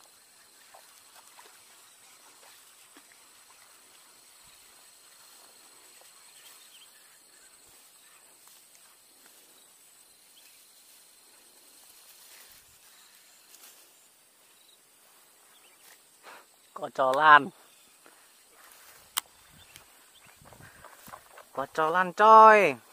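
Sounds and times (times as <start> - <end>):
faint ticks: 18.8 - 21.4.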